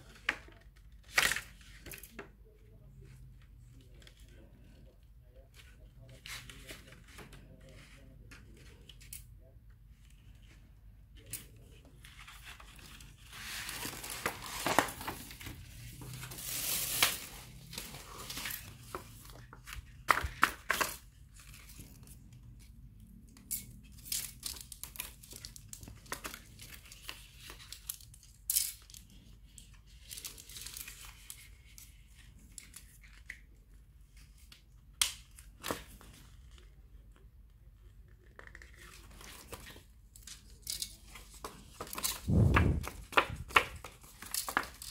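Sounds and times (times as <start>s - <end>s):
plastic panels rustling and crinkling: 10.0s - 22.8s, 23.9s - 44.9s.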